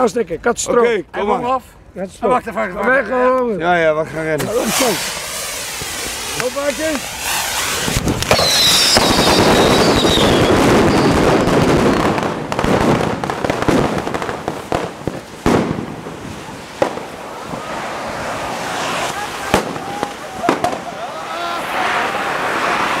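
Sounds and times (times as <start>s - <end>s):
firecrackers crackling and popping: 4.3s - 23.0s
sharp firework bangs: 4.4s - 21.1s
high wavering whistle: 7.1s - 11.5s.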